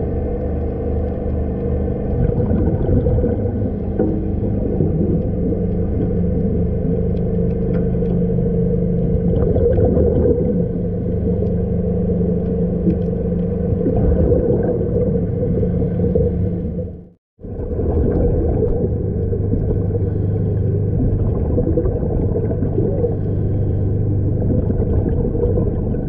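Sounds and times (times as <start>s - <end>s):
underwater machinery hum: 0.0s - 26.0s
faint clicks: 0.2s - 2.3s, 3.9s - 8.8s.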